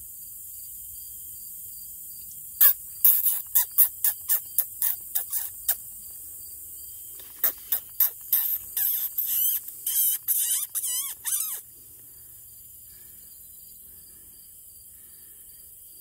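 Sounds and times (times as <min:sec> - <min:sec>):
electronic caller squeals: 0:07.5 - 0:11.6.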